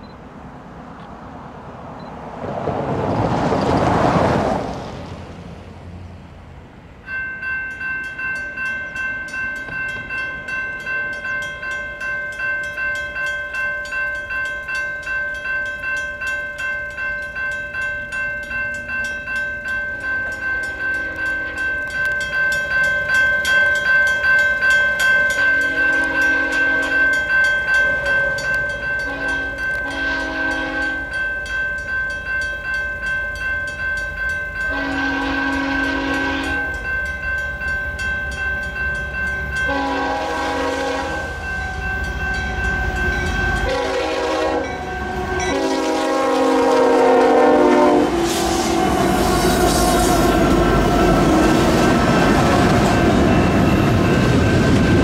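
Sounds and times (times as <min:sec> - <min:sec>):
vehicle passing: 0:00.5 - 0:06.9
railroad crossing bells ringing: 0:06.6 - 0:55.0
locomotive horn blasts: 0:20.3 - 0:22.0, 0:25.4 - 0:27.2, 0:28.3 - 0:31.2, 0:34.6 - 0:36.9, 0:39.6 - 0:41.9, 0:42.5 - 0:53.7.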